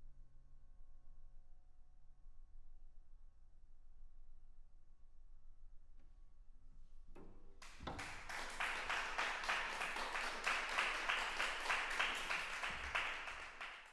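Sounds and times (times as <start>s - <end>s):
audience applauding: 7.6s - 13.9s.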